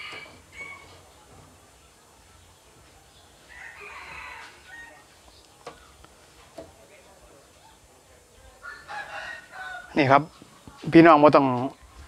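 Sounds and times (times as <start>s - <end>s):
faint rooster crowing: 0.0s - 1.0s, 3.5s - 5.1s, 8.6s - 10.3s.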